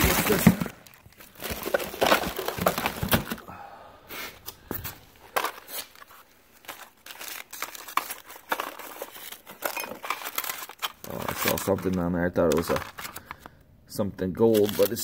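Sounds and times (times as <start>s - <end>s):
boxes knocking and shifting: 0.0s - 3.5s
plastic bags crinkling: 0.0s - 3.5s, 4.8s - 13.5s, 14.4s - 15.0s.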